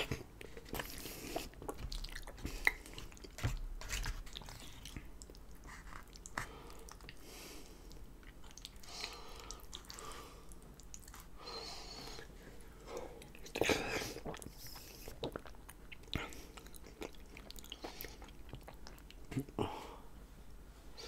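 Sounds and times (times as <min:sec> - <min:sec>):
chewing food: 0:00.0 - 0:19.6.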